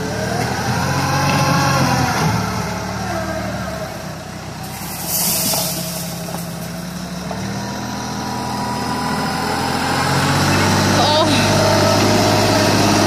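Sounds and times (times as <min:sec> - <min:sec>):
tractor diesel engine running: 0:00.0 - 0:13.0
loud hiss: 0:04.6 - 0:07.2.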